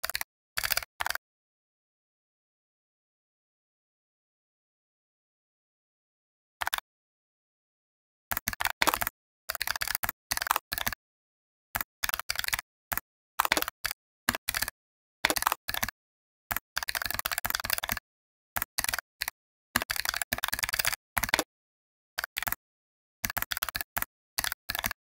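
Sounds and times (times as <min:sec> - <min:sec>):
computer keyboard typing: 0:00.0 - 0:01.2, 0:06.6 - 0:06.8, 0:08.3 - 0:11.0, 0:11.8 - 0:18.0, 0:18.6 - 0:21.5, 0:22.2 - 0:22.6, 0:23.2 - 0:25.0.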